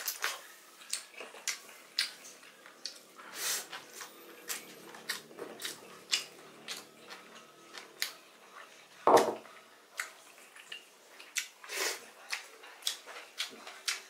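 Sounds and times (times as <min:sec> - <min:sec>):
open-mouthed chewing and lip smacks: 0:00.0 - 0:03.1, 0:03.7 - 0:08.2, 0:09.9 - 0:14.0
ceramic bowl set down on table: 0:09.1 - 0:09.4.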